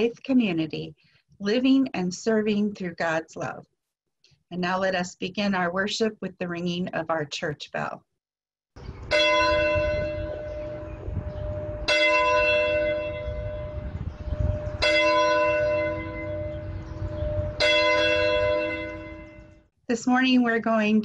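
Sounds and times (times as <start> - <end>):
low rumble: 8.8 - 12.0
church bell tolling: 9.1 - 19.5.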